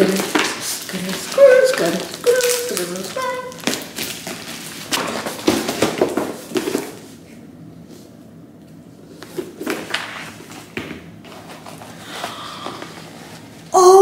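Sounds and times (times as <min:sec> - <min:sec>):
packaging crackling and rustling: 0:00.0 - 0:07.1.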